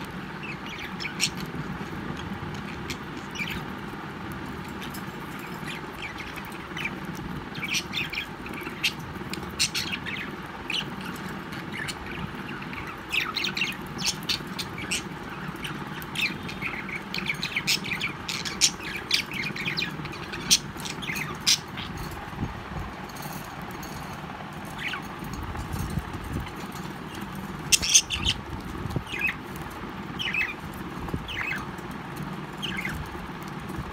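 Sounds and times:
budgerigars chirping: 0:00.0 - 0:03.7, 0:04.8 - 0:22.2, 0:26.9 - 0:31.8, 0:32.5 - 0:33.1.

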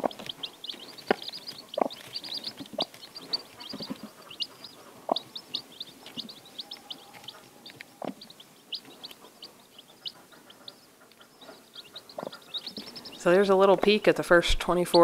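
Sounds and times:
chicks peeping: 0:00.0 - 0:15.0
low hen sounds: 0:05.9 - 0:08.6.

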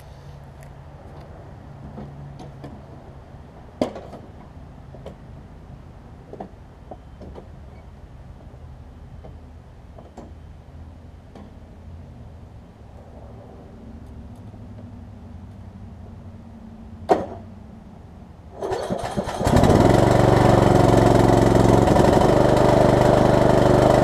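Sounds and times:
knocks and clunks on mower: 0:03.8 - 0:05.2, 0:17.1 - 0:17.5, 0:18.6 - 0:24.0.

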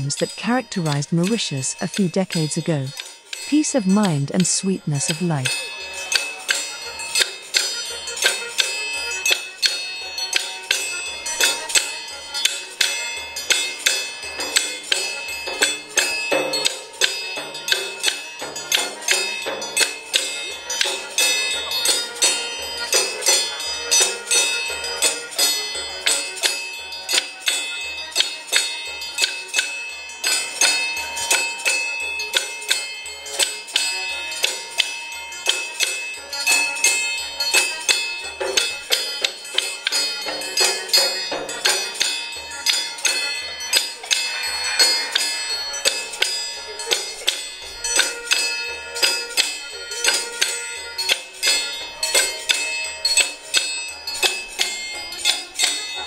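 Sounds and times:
struck ringing tones: 0:27.6 - 0:56.0
low pulsing beat: 0:43.6 - 0:48.4.

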